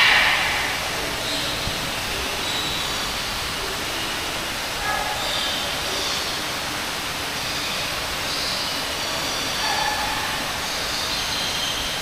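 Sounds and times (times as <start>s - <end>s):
steady rushing noise: 0.0s - 4.7s.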